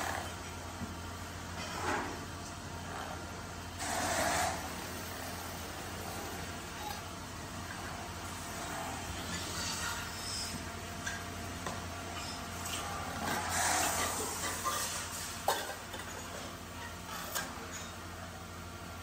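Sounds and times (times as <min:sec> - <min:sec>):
tool scraping spinning metal: 0:00.0 - 0:00.5, 0:02.8 - 0:11.2, 0:12.0 - 0:18.0.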